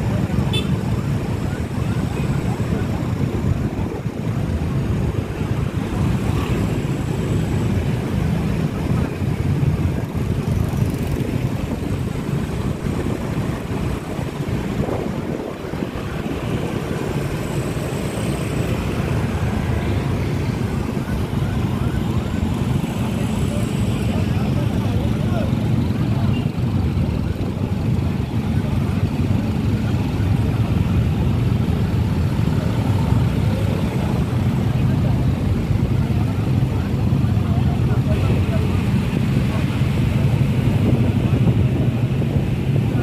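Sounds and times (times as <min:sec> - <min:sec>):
small motorcycles and scooters running: 0:00.0 - 0:43.0
wind rumbling on microphone: 0:00.0 - 0:43.0.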